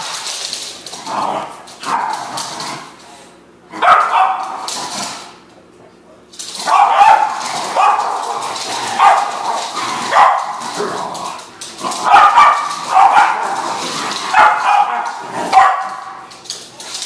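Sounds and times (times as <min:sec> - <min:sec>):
small dogs barking: 0:03.7 - 0:04.7, 0:06.6 - 0:11.0, 0:11.9 - 0:16.4.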